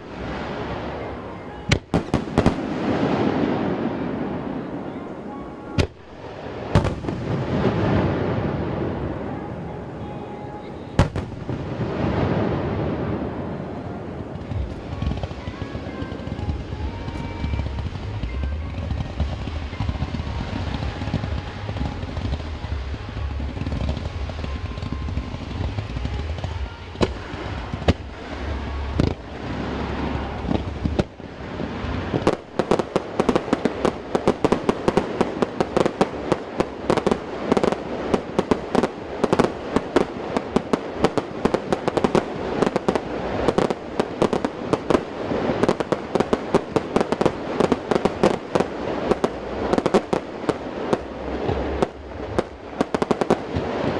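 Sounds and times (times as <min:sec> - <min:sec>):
fireworks bangs and crackles: 0:00.0 - 0:53.9
low rumble: 0:11.0 - 0:38.1, 0:38.9 - 0:53.9.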